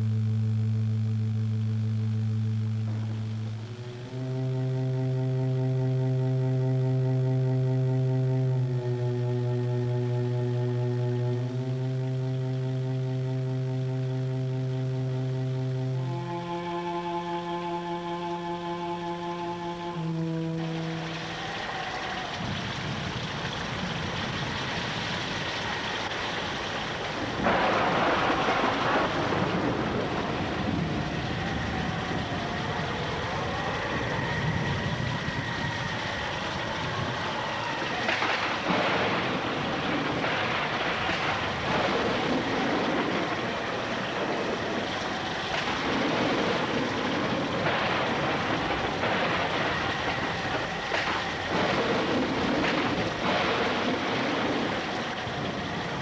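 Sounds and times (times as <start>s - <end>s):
river water rushing and splashing: 20.2s - 31.2s.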